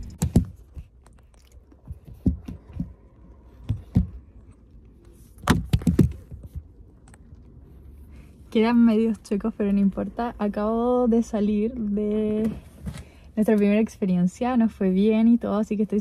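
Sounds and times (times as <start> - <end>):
phone handling knocks and rustles: 1.9 - 4.3, 5.4 - 6.8.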